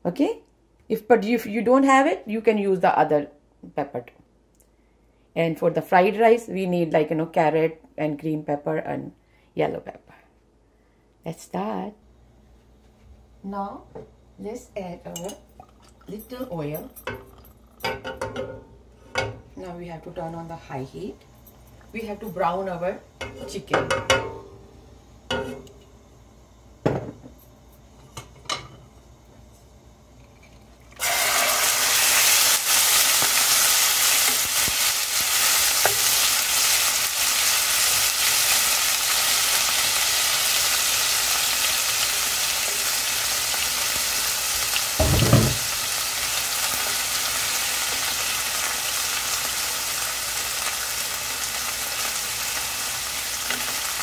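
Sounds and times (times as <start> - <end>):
chicken sizzling in oil: 31.0 - 54.0.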